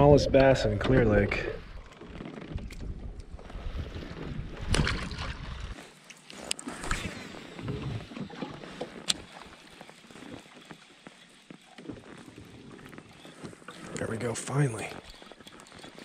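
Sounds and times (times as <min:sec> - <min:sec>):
wind rumble on microphone: 0:00.0 - 0:05.8
fishing gear clicks and knocks: 0:00.4 - 0:03.6, 0:05.9 - 0:16.0.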